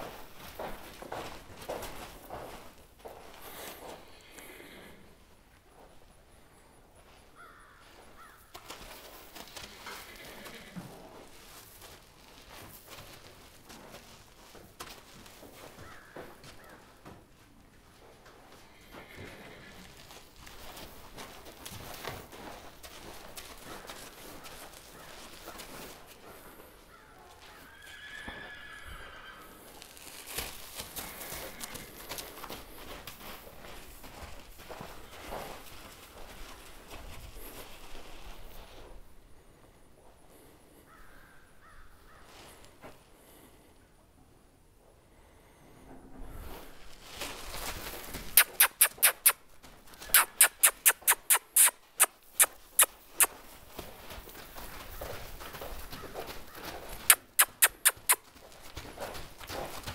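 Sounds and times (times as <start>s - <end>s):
hoof steps: 0.0s - 43.8s, 45.6s - 59.9s
horse whinnying: 9.9s - 10.8s, 27.6s - 29.6s, 48.3s - 49.4s, 50.0s - 53.3s, 57.0s - 58.2s
short sharp squeaks: 48.3s - 49.4s, 50.0s - 53.4s, 57.0s - 58.2s.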